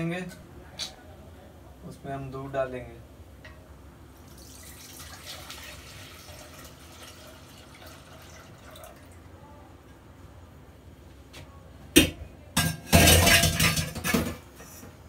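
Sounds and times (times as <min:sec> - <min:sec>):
milk pouring into a metal pot: 0:04.3 - 0:09.2.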